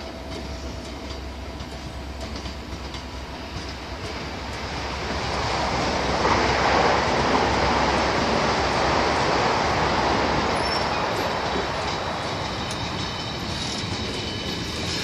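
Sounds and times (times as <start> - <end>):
freight train wheels rumbling on rail: 0.0 - 15.0.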